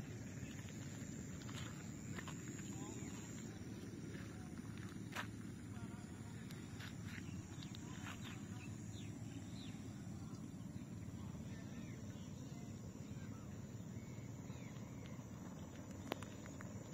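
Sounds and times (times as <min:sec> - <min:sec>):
faint bird chirps: 0:05.8 - 0:16.9.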